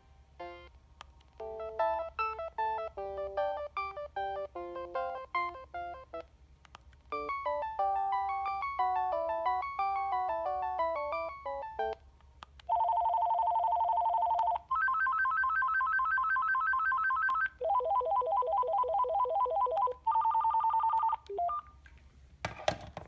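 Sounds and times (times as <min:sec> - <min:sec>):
cordless phone ringtones: 0:12.7 - 0:21.7.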